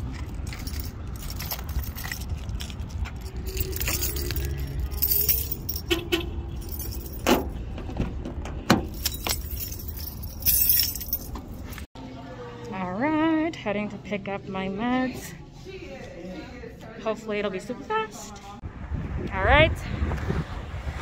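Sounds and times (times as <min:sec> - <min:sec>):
keys jangling: 0:00.0 - 0:06.0, 0:06.6 - 0:07.6, 0:08.7 - 0:11.9
steady low rumble: 0:18.6 - 0:21.0.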